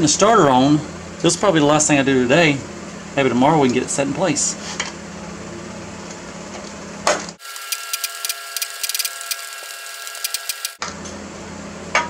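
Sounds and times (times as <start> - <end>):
socket ratchet clicking: 7.4 - 10.8.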